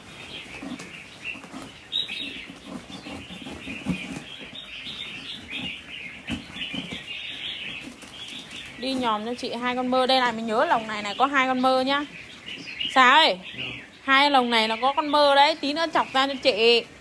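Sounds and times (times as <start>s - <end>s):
wings fluttering: 0.0s - 9.8s
birds chirping: 0.0s - 17.0s.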